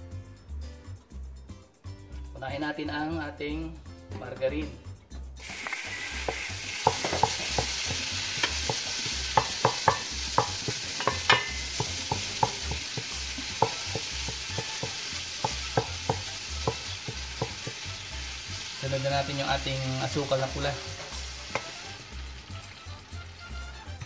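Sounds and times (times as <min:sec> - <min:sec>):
sharp popping: 0:05.4 - 0:13.0
margarine sizzling in a pot: 0:05.4 - 0:24.0.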